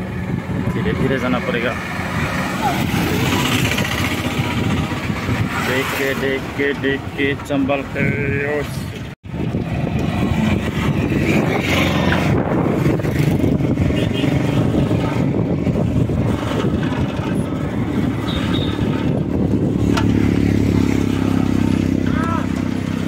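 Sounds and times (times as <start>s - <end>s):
highway traffic rumbling: 0.0s - 23.0s
motorcycle engine hum: 0.0s - 23.0s.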